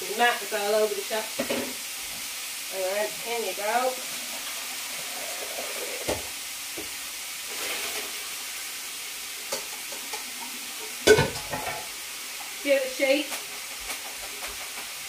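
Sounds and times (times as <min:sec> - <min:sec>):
bacon sizzling in a frying pan: 0:00.0 - 0:15.0
kitchenware clinking: 0:09.5 - 0:12.0.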